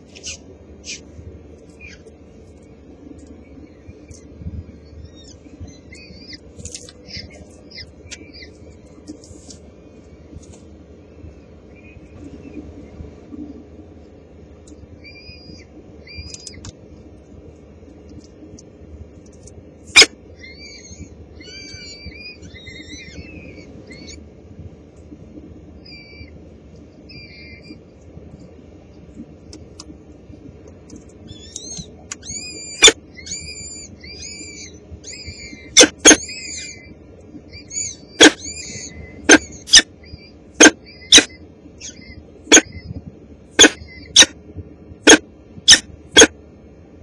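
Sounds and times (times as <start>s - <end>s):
falcon chicks peeping: 1.6s - 9.5s, 27.1s - 27.8s, 31.0s - 44.4s, 45.0s - 46.3s.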